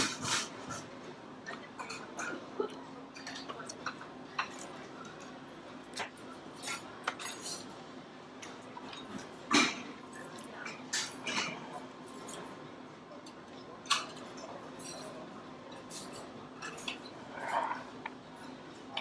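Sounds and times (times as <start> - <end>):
cutlery clinking on plates: 3.1 - 5.4, 6.0 - 7.8, 8.4 - 12.6, 13.2 - 19.0.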